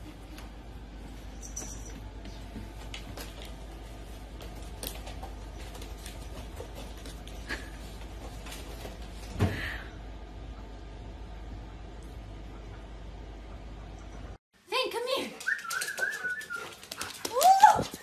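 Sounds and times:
low steady hum: 0.0 - 14.4.

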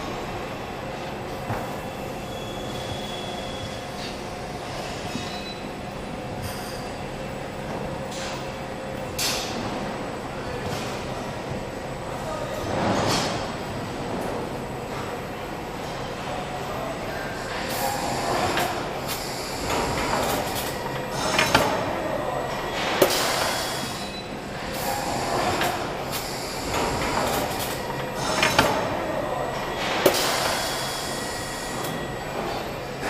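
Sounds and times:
machinery hiss and clatter: 17.4 - 21.8, 22.8 - 28.8, 29.9 - 32.6.

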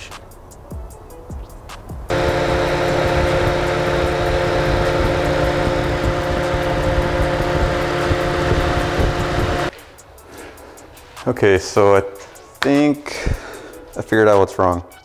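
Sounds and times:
car engine idling: 2.1 - 9.7
radiator fans running: 2.1 - 10.2.

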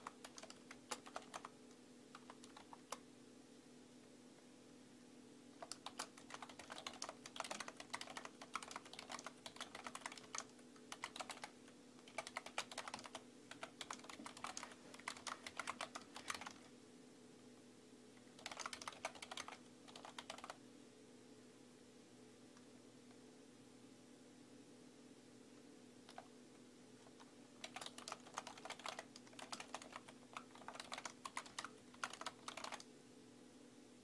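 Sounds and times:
computer keyboard typing: 0.0 - 3.0, 5.6 - 16.7, 18.2 - 20.6, 26.1 - 26.3, 27.1 - 32.9
faint steady hum: 0.0 - 34.0.

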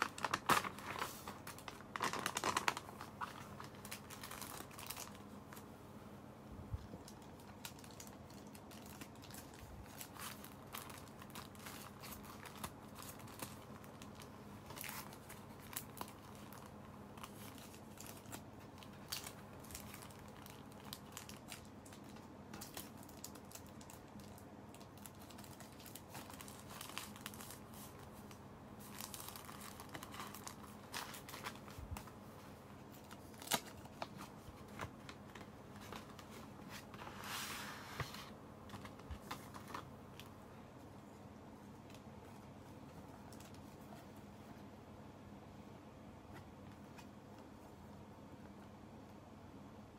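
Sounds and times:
paper crinkling and rustling: 0.0 - 5.7, 6.7 - 40.4.

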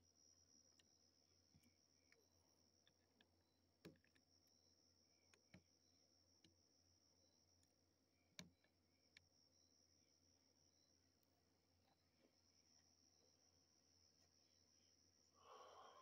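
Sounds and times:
faint high-pitched tone: 4.3 - 16.0.

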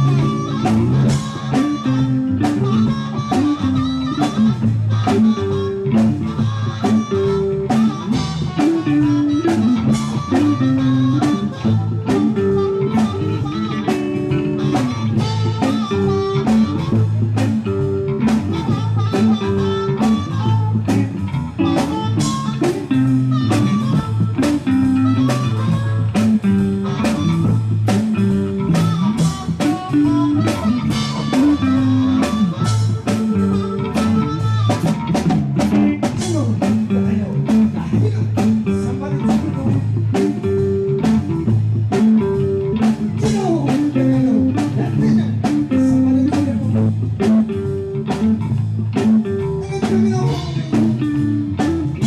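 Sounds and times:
drum kit steady beat: 0.0 - 52.0
electric guitar: 0.0 - 52.0
harmonica: 0.0 - 52.0
repeating low riff: 0.0 - 52.0.

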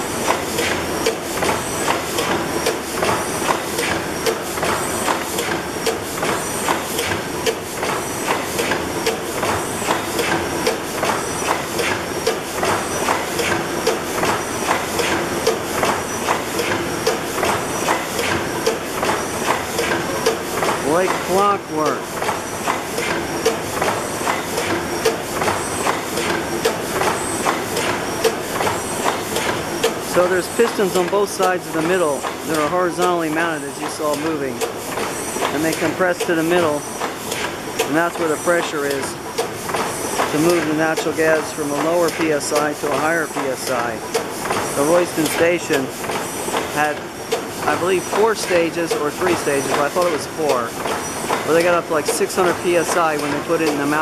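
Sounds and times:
engine-compressor clatter: 0.0 - 54.0.

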